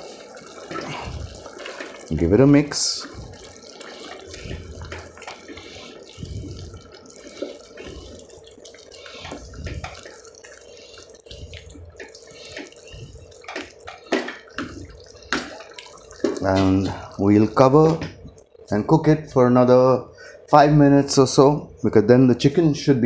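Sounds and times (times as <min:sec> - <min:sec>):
thick curry sloshing: 0:00.0 - 0:17.8.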